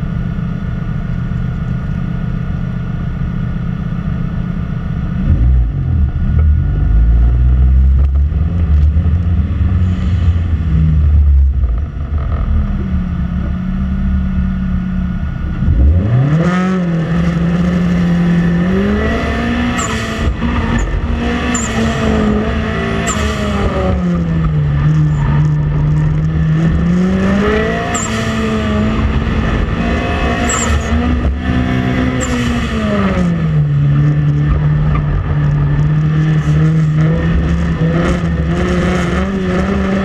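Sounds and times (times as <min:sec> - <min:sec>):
car engine revving: 0:00.0 - 0:40.0
tire squeals: 0:18.6 - 0:40.0.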